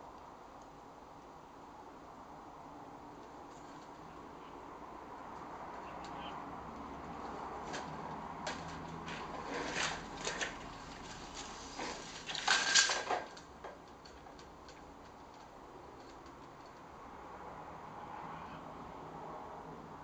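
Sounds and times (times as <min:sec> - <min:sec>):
blind slats clicking and rattling: 0:06.8 - 0:16.9.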